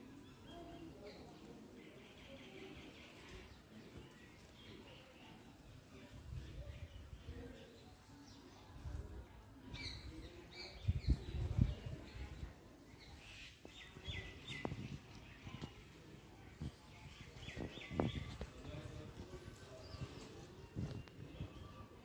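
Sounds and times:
small birds chirping: 9.6 - 22.0.

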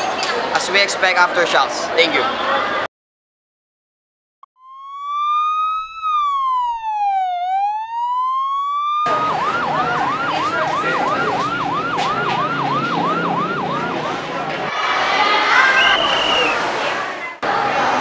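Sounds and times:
emergency vehicle siren: 4.6 - 14.7.

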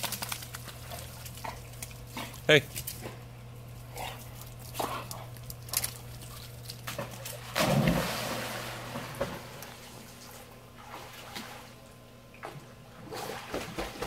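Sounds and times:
water sloshing: 0.0 - 14.0
dog splashing into pool: 6.8 - 11.8, 12.4 - 14.0.

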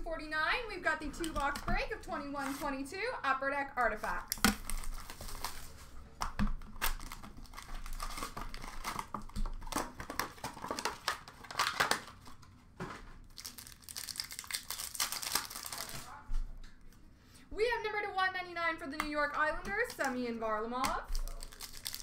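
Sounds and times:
foil wrappers crinkling and tearing: 4.1 - 6.0, 6.6 - 12.4, 13.2 - 16.2, 19.6 - 22.0.

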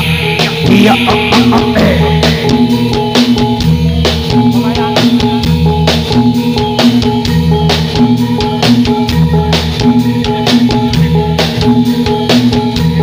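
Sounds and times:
deep bass note: 0.0 - 6.4
fast sharp drum strikes: 0.0 - 13.0
held pitched notes: 0.0 - 13.0.

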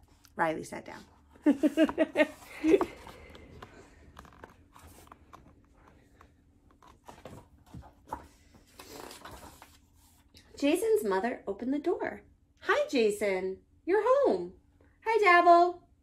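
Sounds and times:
woman speaking: 0.3 - 1.1, 10.5 - 15.9
book handling clicks and rustles: 1.6 - 10.3.

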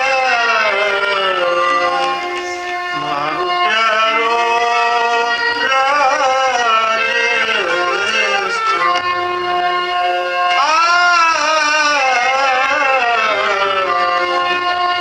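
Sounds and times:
folk music with wavering melody: 0.0 - 15.0.

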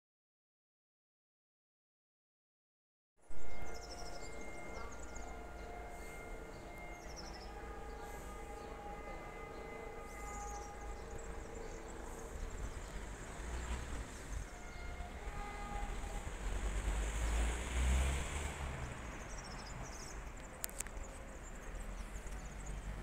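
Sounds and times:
distant train rumble: 3.3 - 23.0
birds chirping: 3.4 - 16.2.

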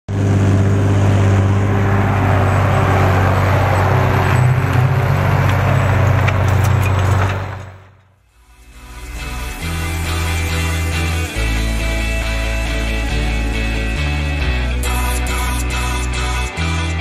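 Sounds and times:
tractor diesel engine running: 0.1 - 16.2.

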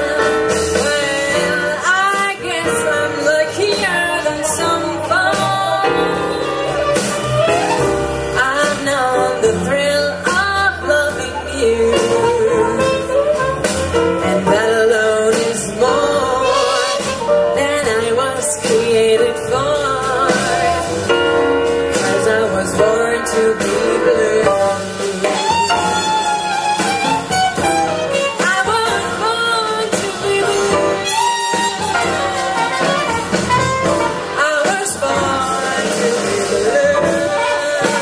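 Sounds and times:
small jazz band playing: 0.0 - 38.0
trumpet lead line: 4.2 - 8.8, 15.8 - 17.8, 21.9 - 38.0.

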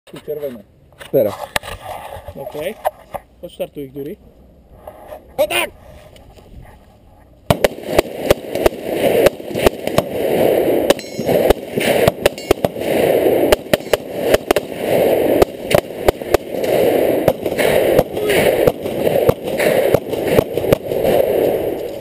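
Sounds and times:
rapid rifle fire: 7.5 - 22.0.

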